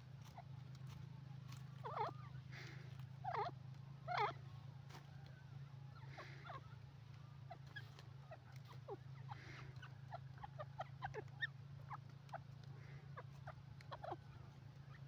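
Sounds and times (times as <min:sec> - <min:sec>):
steady low hum: 0:00.0 - 0:15.0
bird squeaky calls: 0:01.5 - 0:04.4, 0:05.9 - 0:15.0.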